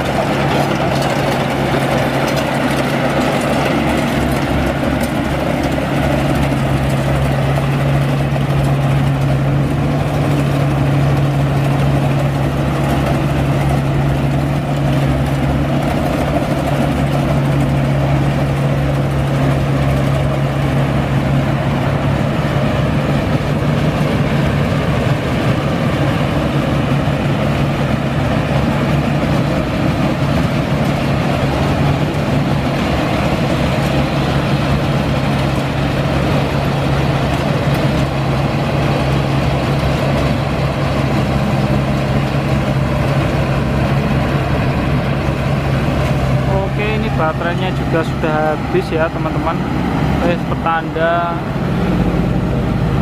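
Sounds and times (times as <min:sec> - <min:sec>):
diesel engine humming: 0:00.0 - 0:53.0.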